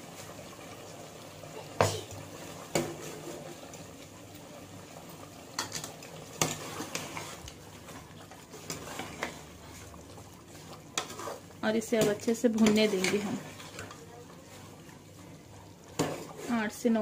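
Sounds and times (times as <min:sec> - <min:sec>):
pot simmering with a hiss: 0:00.0 - 0:17.0.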